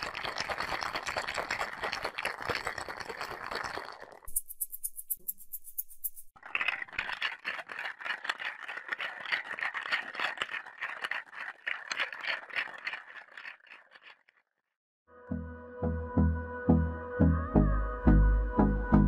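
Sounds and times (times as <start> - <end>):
dog chewing crunchily: 6.4 - 14.2.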